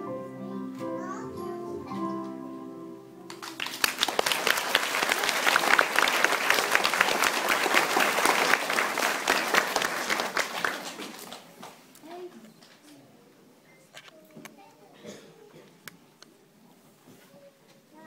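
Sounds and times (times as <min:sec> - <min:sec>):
audience applause: 0:03.3 - 0:11.8.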